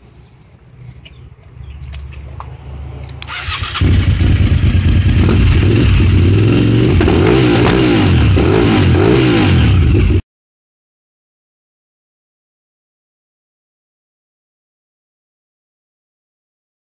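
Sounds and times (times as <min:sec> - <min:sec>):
motorcycle engine idling and revving: 0:01.6 - 0:10.2.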